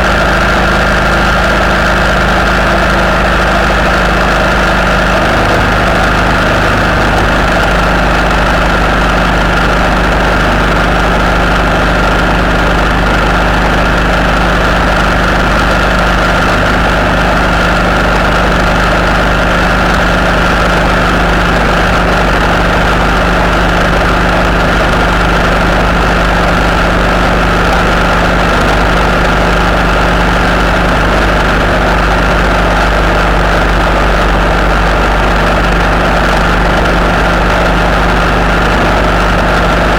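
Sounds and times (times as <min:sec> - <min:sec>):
road noise: 0:00.0 - 0:39.9
vehicle engine drone: 0:00.0 - 0:39.9
high-pitched whine: 0:01.8 - 0:29.8.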